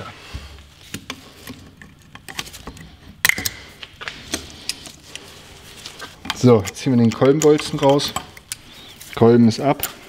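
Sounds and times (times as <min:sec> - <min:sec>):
small metal clicks and scrapes: 0:04.3 - 0:10.0.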